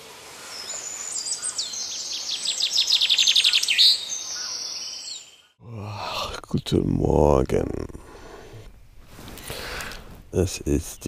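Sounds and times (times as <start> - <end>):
songbirds singing: 0.4 - 5.6.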